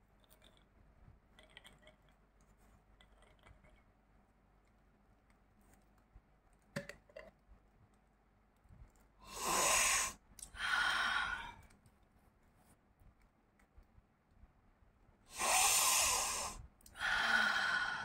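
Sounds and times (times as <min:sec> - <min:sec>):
person sniffing loudly: 0:09.2 - 0:11.6, 0:15.3 - 0:18.0.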